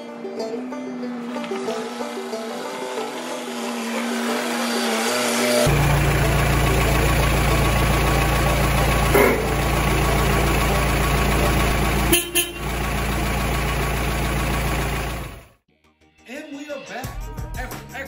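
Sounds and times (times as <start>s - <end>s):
diesel engine idling: 5.5s - 15.6s.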